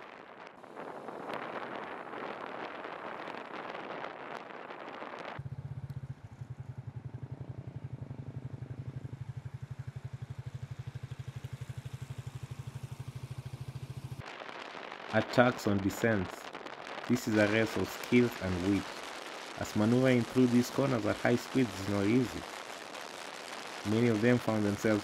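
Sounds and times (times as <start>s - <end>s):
vehicle engine running steadily: 5.4s - 14.2s
rushing noise: 14.2s - 25.0s.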